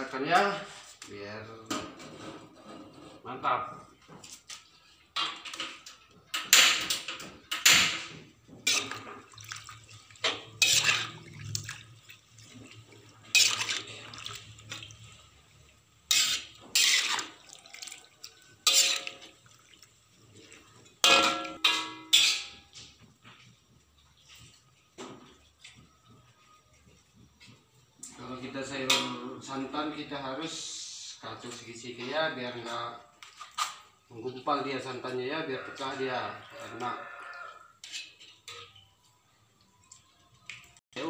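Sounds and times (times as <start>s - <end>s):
metal spatula scraping wok: 2.0s - 3.4s, 6.4s - 9.3s, 10.2s - 11.5s, 12.5s - 19.4s, 21.0s - 23.0s, 35.6s - 38.8s
wet sloshing: 8.6s - 20.8s.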